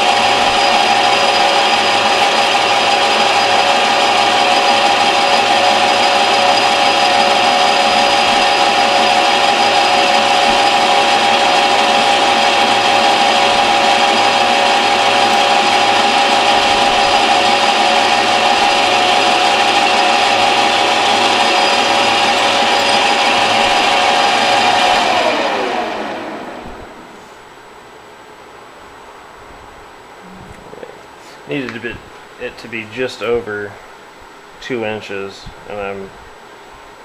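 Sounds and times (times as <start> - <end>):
cutting tool on metal: 0.0 - 25.3
metal lathe whining: 0.0 - 27.1.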